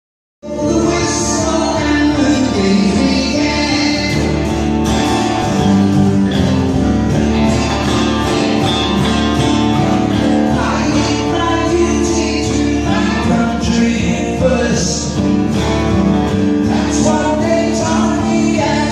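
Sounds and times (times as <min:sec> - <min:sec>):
man singing: 0:00.4 - 0:04.7, 0:07.4 - 0:15.7, 0:16.3 - 0:18.9
acoustic guitar strumming: 0:00.4 - 0:18.9.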